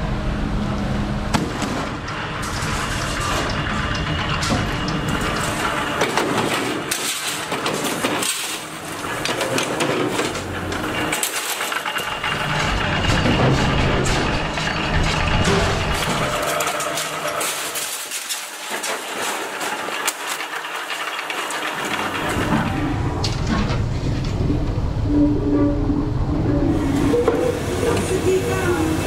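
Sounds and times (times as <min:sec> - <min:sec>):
machine running: 0:00.0 - 0:29.0
metal sheets rattling: 0:01.4 - 0:24.4.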